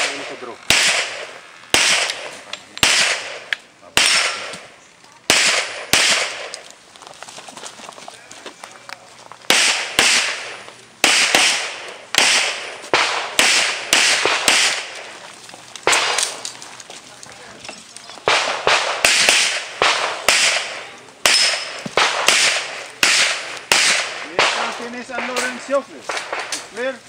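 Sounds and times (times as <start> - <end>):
pistol shots with echo: 0.0 - 4.7, 5.3 - 6.6, 9.5 - 15.2, 15.8 - 16.4, 18.2 - 26.7.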